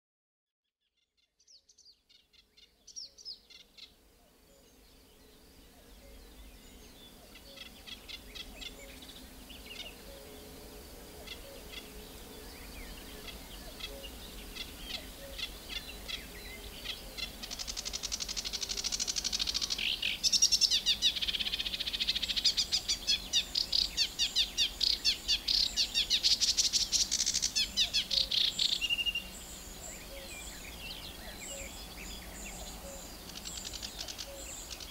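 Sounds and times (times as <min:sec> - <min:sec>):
bird singing chattering notes: 0:13.2 - 0:29.4.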